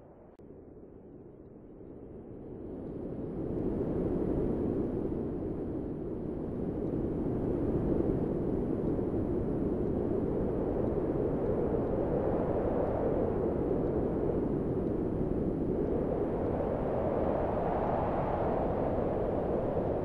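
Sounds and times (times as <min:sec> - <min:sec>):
wind rushing: 0:14.8 - 0:20.0.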